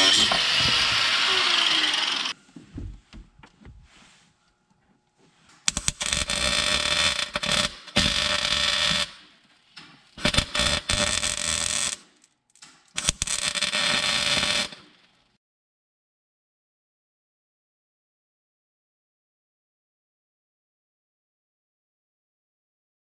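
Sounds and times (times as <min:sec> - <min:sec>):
arc welder crackling and buzzing: 0:00.0 - 0:02.4, 0:05.7 - 0:15.4.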